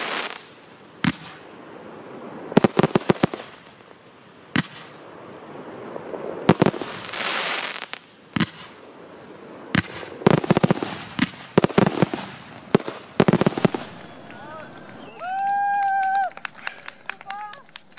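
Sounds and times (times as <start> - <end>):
fireworks bangs: 0.0 - 17.9
fireworks crackles: 0.0 - 17.9
hissing rush of comets launching: 4.4 - 14.0.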